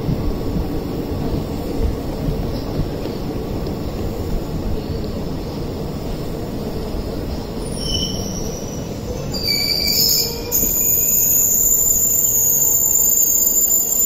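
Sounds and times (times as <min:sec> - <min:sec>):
train wheels rumbling on track: 0:00.0 - 0:14.0
high-pitched wheel squeal: 0:07.6 - 0:14.0.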